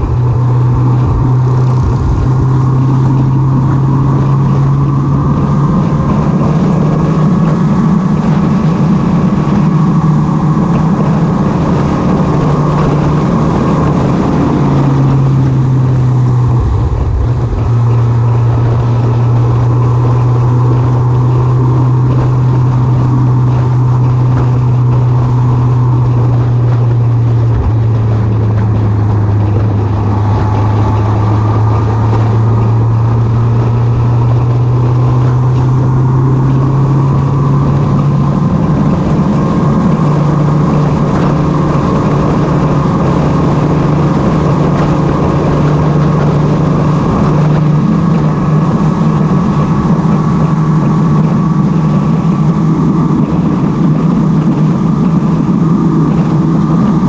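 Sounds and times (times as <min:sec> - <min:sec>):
motorbike engine cruising: 0:00.0 - 0:57.0
wind on microphone: 0:00.0 - 0:57.0.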